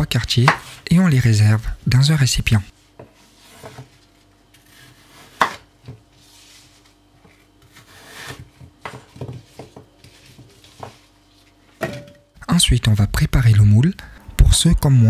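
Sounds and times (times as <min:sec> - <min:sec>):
knife chopping on cutting board: 0:00.4 - 0:00.8, 0:04.7 - 0:06.0, 0:07.7 - 0:11.0.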